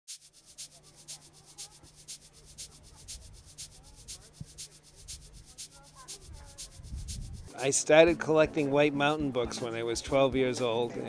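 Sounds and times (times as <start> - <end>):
pulsing soft hiss: 0.1 - 8.2
steady low hum: 0.4 - 7.6
murmur of distant voices: 0.8 - 11.0.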